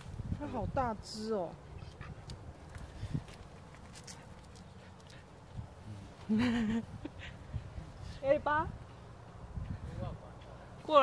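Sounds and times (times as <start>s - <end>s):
dog paws on pebbles: 1.8s - 5.5s.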